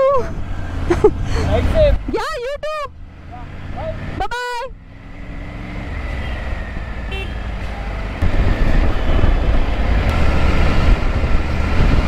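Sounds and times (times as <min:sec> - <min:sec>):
wind rumble on microphone: 0:08.2 - 0:12.0.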